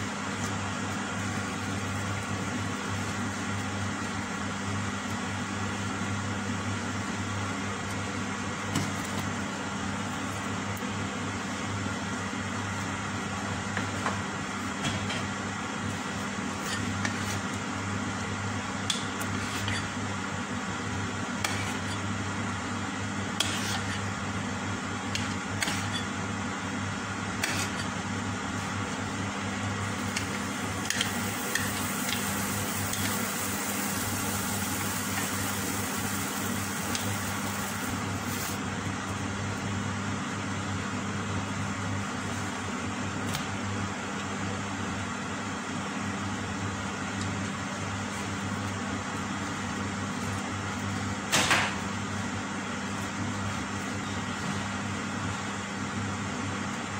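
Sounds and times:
low electrical hum: 0:00.0 - 0:56.9
batter sizzling in a pan: 0:29.9 - 0:38.6.

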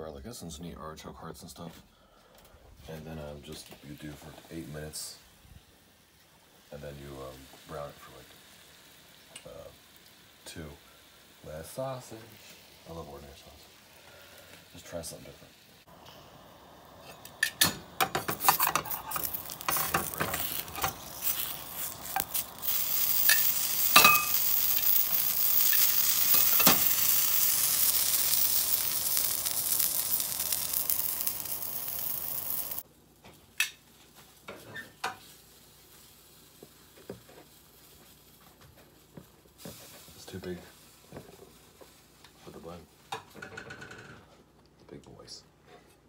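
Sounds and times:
sausages sizzling in a frying pan: 0:03.4 - 0:44.1.

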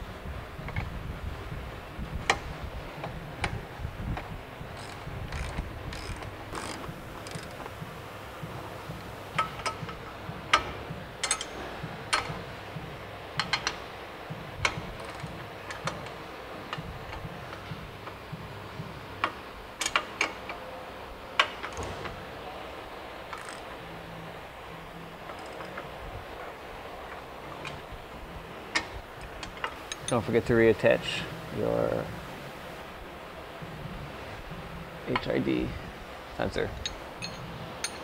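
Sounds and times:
wrench and ratchet clicking: 0:04.7 - 0:07.7, 0:09.4 - 0:12.3, 0:14.6 - 0:17.6, 0:19.2 - 0:20.5, 0:23.3 - 0:23.7, 0:25.3 - 0:25.8, 0:36.8 - 0:38.0.

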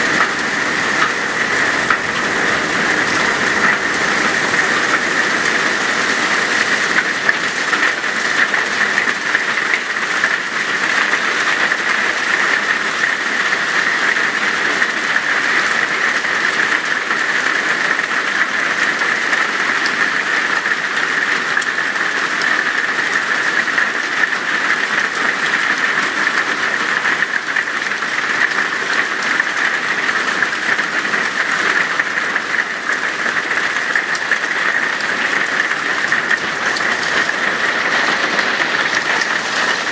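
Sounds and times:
heavy hail on pavement: 0:00.0 - 0:39.9.

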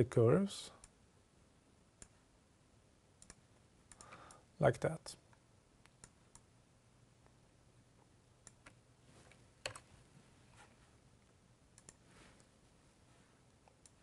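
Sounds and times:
faint low hum: 0:00.0 - 0:14.0
computer mouse clicks: 0:02.0 - 0:02.2, 0:03.2 - 0:04.4, 0:05.8 - 0:06.5, 0:08.4 - 0:09.9, 0:11.8 - 0:12.5.

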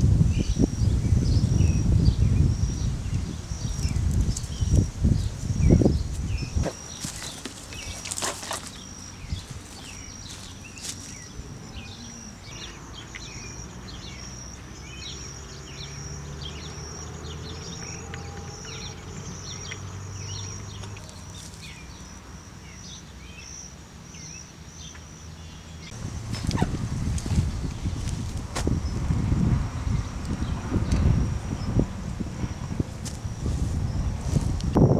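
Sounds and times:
high-pitched insect drone: 0:00.0 - 0:31.9
bird chirps: 0:00.3 - 0:29.0.

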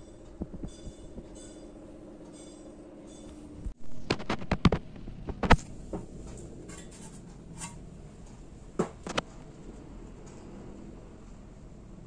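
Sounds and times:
fan motor running: 0:00.0 - 0:12.0
sharp clicks and knocks: 0:00.2 - 0:09.5.

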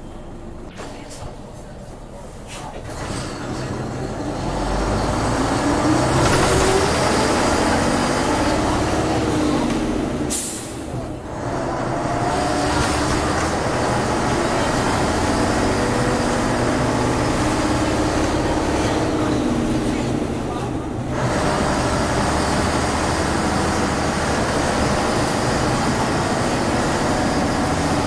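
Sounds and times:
bus diesel engine pulling: 0:00.0 - 0:28.0
short hiss of air: 0:10.3 - 0:10.8.

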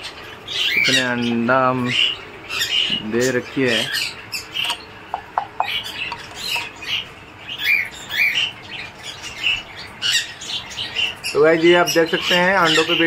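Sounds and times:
parrots squawking: 0:00.0 - 0:13.0
clear bird chirps: 0:03.8 - 0:11.4.

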